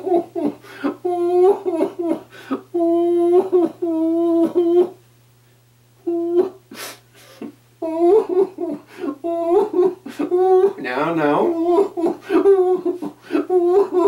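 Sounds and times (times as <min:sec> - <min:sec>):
man humming moans: 0:06.0 - 0:06.6
breathy hiss: 0:06.7 - 0:07.6.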